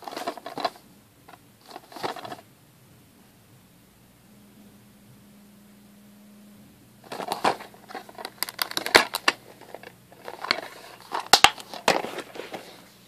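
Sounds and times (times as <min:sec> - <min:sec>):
plastic case crackling and clicking: 0:00.0 - 0:00.8, 0:01.6 - 0:02.4, 0:07.0 - 0:12.6.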